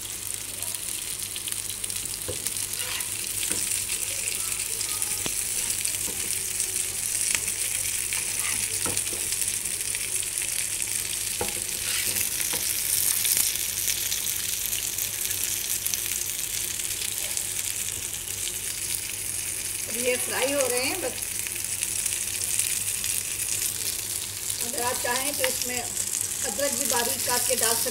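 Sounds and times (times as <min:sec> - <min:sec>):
cutlets sizzling in frying pan: 0:00.0 - 0:27.9
metal spatula scraping pan: 0:11.7 - 0:12.3.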